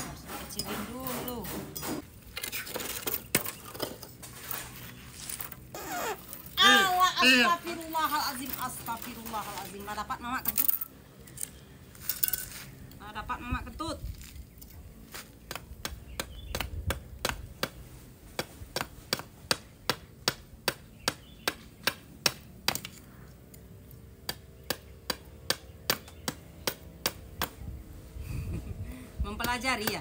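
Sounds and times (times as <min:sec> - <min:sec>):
machete chopping wood: 0:15.4 - 0:23.0, 0:24.2 - 0:27.6.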